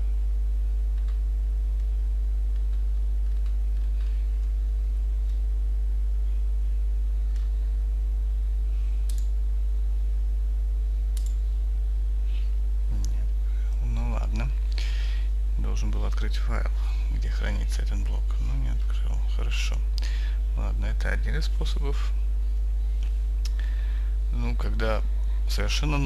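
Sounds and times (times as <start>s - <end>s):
low electrical hum with tones: 0.0s - 26.0s
faint mouse clicks: 7.2s - 7.6s, 9.0s - 9.4s, 11.1s - 11.4s.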